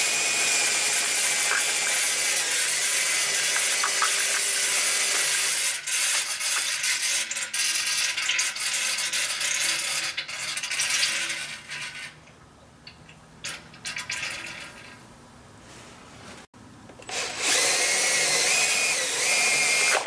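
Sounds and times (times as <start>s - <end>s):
electric drill spinning: 0.0s - 6.6s, 17.0s - 20.0s.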